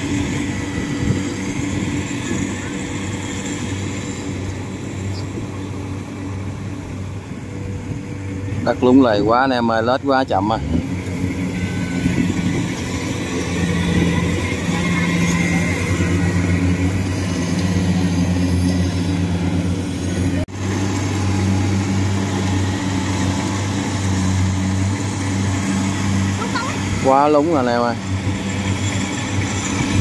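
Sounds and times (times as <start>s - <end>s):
diesel harvester engines running: 0.0s - 30.0s.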